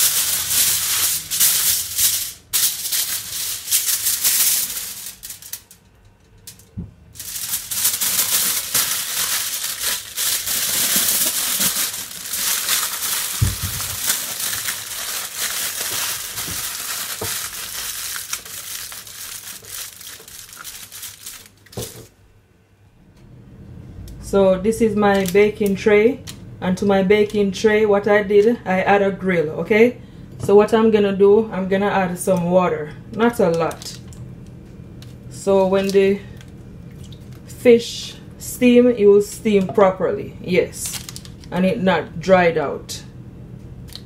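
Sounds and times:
aluminium foil crinkling: 0.0 - 22.1, 25.1 - 25.8, 33.4 - 34.2, 35.0 - 37.5, 40.7 - 41.5.

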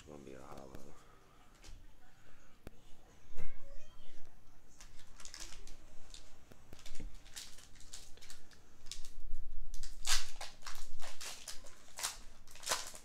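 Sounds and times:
cards and foil wrapper crinkling: 4.7 - 13.0.

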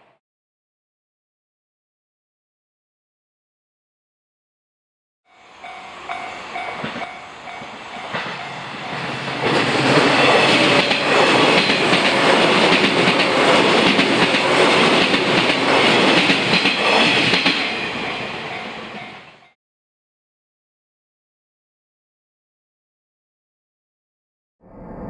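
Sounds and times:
level crossing warning bell: 5.3 - 9.4, 16.8 - 19.6
train wheels clattering over rails: 6.1 - 19.3.

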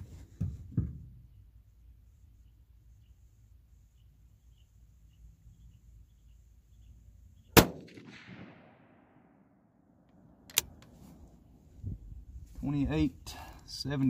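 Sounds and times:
rifle shot: 7.6 - 9.7.

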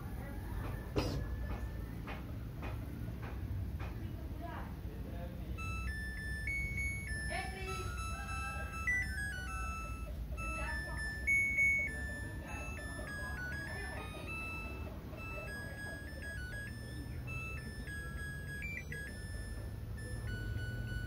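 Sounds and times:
washing machine beeping melody: 5.4 - 21.0.

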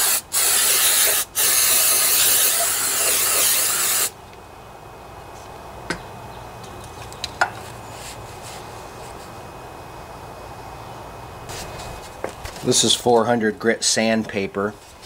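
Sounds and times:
aerosol spray can hissing: 0.0 - 4.1.

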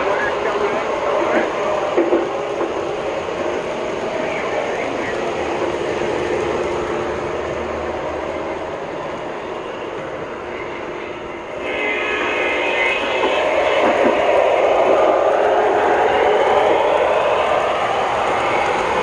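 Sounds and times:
high whine: 0.0 - 19.0
model train rolling rumble: 0.0 - 19.0.

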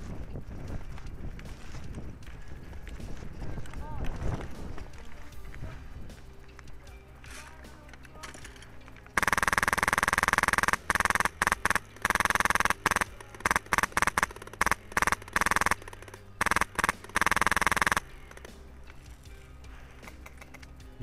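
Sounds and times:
airsoft machine gun firing bursts: 9.2 - 18.5.

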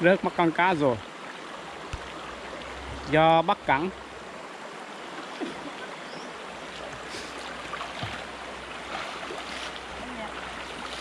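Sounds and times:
flowing water: 0.0 - 11.0
water sloshing around legs: 4.8 - 11.0
light splashes: 6.7 - 11.0.

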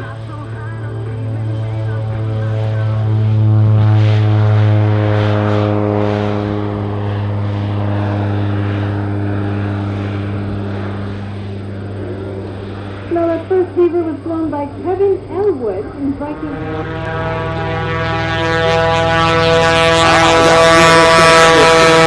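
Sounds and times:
propeller plane engine drone: 0.0 - 22.0.

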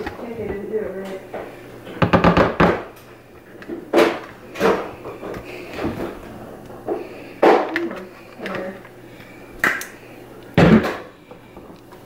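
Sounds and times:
spatula and plastic dishes knocking: 2.0 - 2.9.

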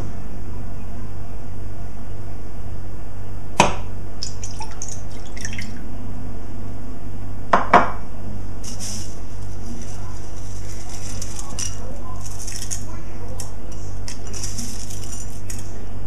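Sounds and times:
steady low hum: 0.0 - 16.0
water pouring into saucepan: 4.2 - 5.8.

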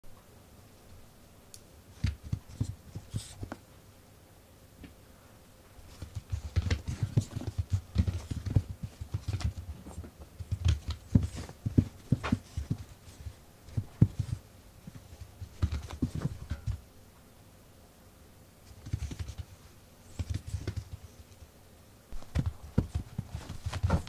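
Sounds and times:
light taps and soft thumps: 5.9 - 16.8, 22.2 - 24.0.

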